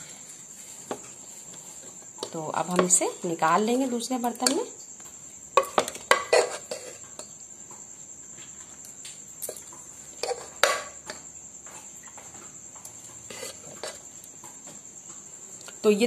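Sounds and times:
spoon scraping a pressure cooker: 0:05.6 - 0:07.3, 0:10.2 - 0:11.0, 0:13.2 - 0:14.0.

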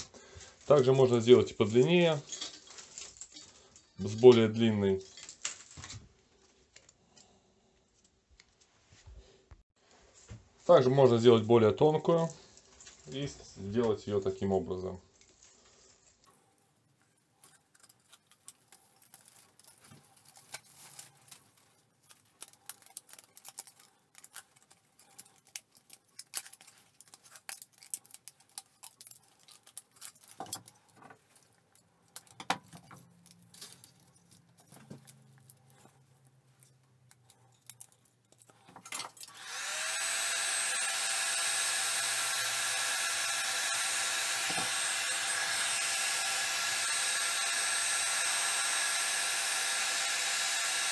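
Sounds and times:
plastic strip rustling and clicking: 0:01.6 - 0:07.3, 0:17.0 - 0:39.5
heat gun whining: 0:38.8 - 0:50.9.

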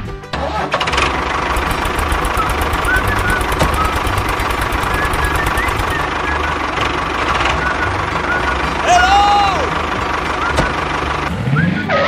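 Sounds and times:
tractor engine running: 0:00.6 - 0:12.0.

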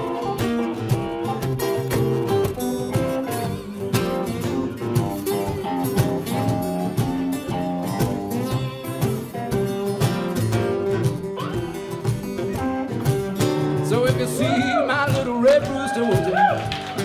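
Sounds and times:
acoustic guitars playing blues: 0:00.0 - 0:17.0
cajon beat: 0:00.0 - 0:17.0.

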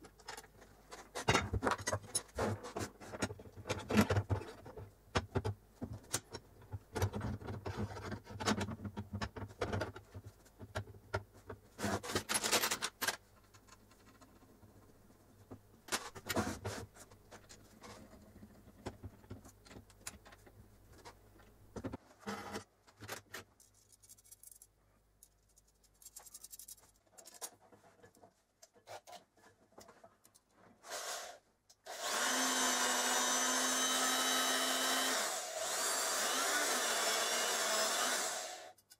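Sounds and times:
metal parts clicking and scraping: 0:12.0 - 0:14.4, 0:22.9 - 0:27.6
power drill running: 0:30.9 - 0:38.8.

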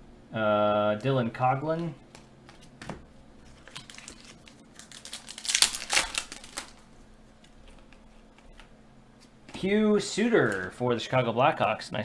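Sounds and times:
foil wrapper crinkling and tearing: 0:03.4 - 0:06.9.

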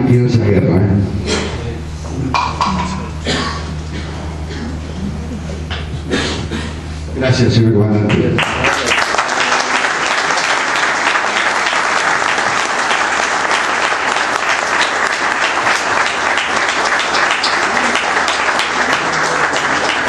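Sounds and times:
audience applauding: 0:08.1 - 0:20.0.

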